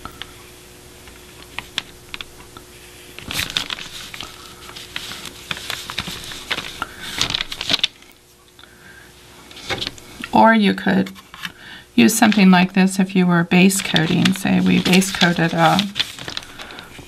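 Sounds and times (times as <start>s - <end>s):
paper sheets rustling: 2.9s - 8.2s, 9.5s - 10.0s, 11.0s - 13.0s, 13.6s - 17.0s.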